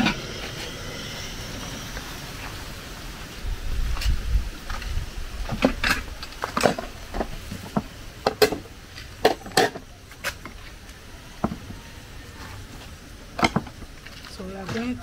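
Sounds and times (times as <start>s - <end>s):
utensils clinking against a pot: 8.2s - 10.0s.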